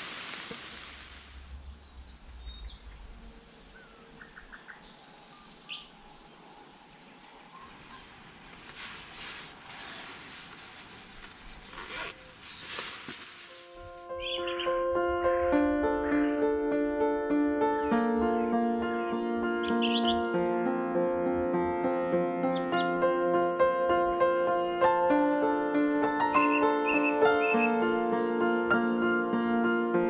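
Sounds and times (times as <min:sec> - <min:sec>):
light rain patter and dripping: 0:00.0 - 0:01.6
sleeping bag rustling: 0:08.0 - 0:14.1.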